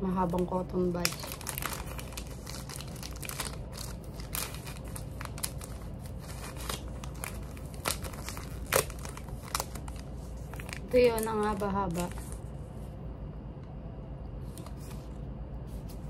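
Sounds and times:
wrapper crinkling and tearing: 0:00.2 - 0:12.4
plastic bag rustling: 0:00.2 - 0:12.7.

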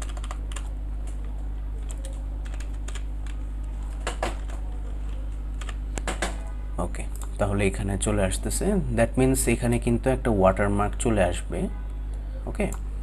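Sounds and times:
keyboard keys clicking: 0:00.0 - 0:06.3.

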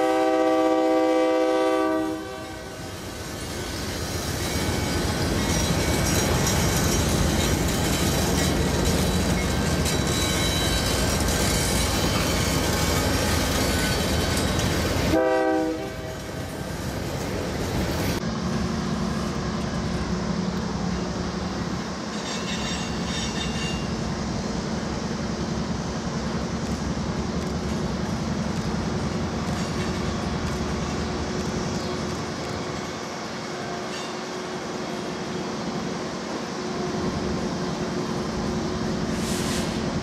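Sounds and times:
train horn note: 0:00.0 - 0:02.8, 0:15.1 - 0:16.2
diesel locomotive drone: 0:00.0 - 0:40.0
train wheels rumbling and clattering: 0:00.0 - 0:40.0
faint high squeal: 0:22.1 - 0:24.0.

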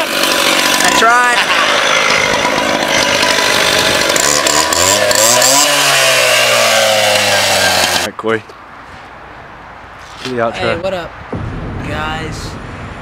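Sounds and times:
abrasive wheel grinding metal: 0:00.0 - 0:08.1
cut-off saw engine running: 0:00.0 - 0:08.1.

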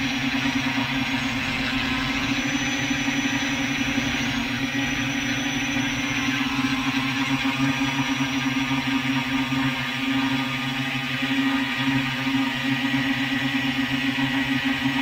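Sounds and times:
drone motors humming: 0:00.0 - 0:15.0.

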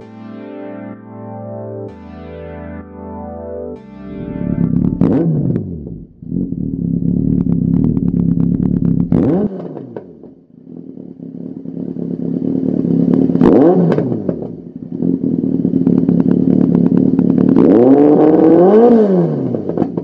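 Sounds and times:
motorcycle engine revving: 0:04.2 - 0:20.0.

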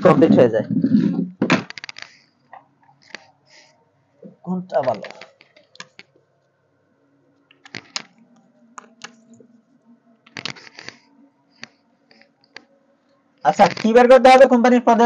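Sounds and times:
faint steady hum: 0:00.0 - 0:15.0
markers clicking and tapping: 0:04.8 - 0:06.2, 0:07.5 - 0:09.4, 0:13.4 - 0:14.2.

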